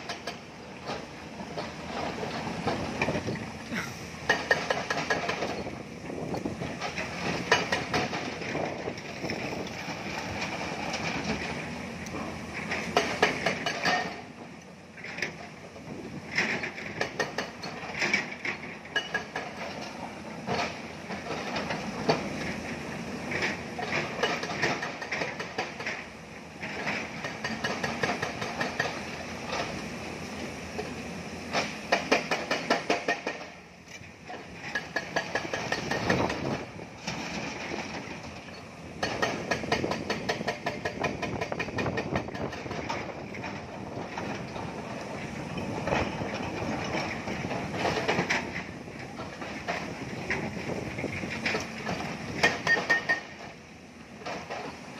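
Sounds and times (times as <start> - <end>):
excavator engines under load: 0.0 - 54.9.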